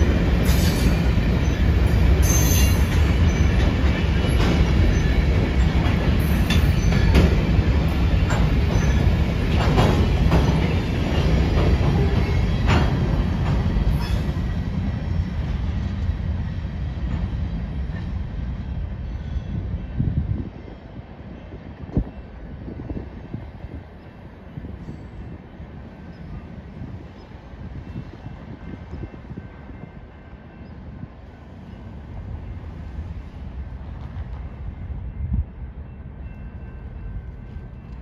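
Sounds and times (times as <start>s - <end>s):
train wheels rumbling on rail: 0.0s - 38.0s
high wheel squeals: 0.4s - 3.6s.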